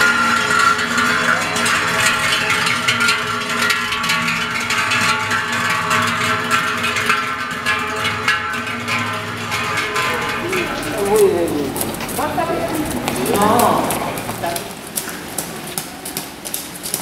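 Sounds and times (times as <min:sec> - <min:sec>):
large cowbells clanging: 0:00.0 - 0:17.0.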